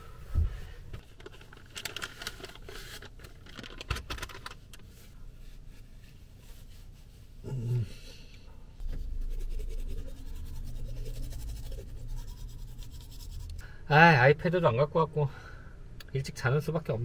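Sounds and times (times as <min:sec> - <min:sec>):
tissue packet crinkling: 0:01.2 - 0:03.8.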